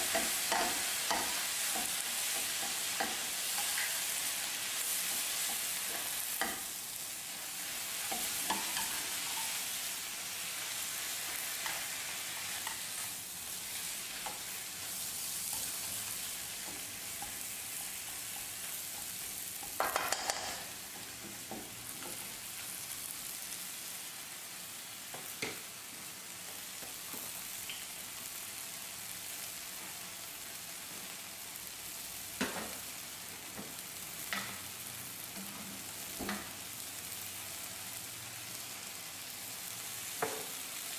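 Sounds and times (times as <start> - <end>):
vegetables sizzling in oil: 0.0 - 40.9
spatula scraping and knocking pan: 16.6 - 22.2.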